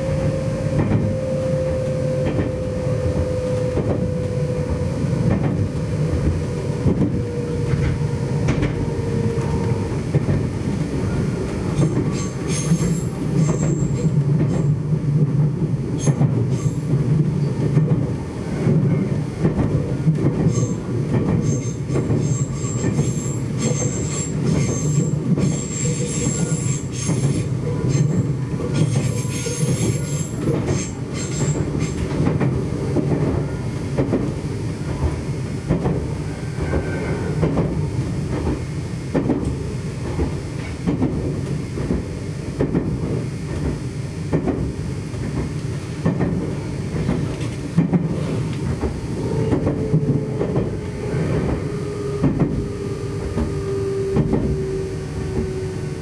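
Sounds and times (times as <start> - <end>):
train wheels rumbling on rail: 0.0 - 56.0.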